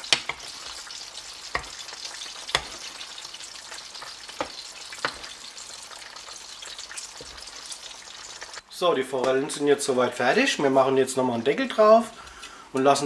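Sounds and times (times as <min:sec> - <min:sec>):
sauce sizzling in a frying pan: 0:00.0 - 0:08.6.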